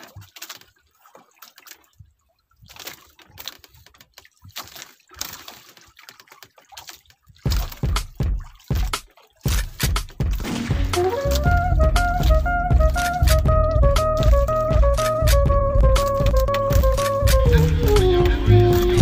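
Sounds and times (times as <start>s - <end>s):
water sloshing and splashing: 0.0s - 19.0s
loud low thumps: 9.5s - 19.0s.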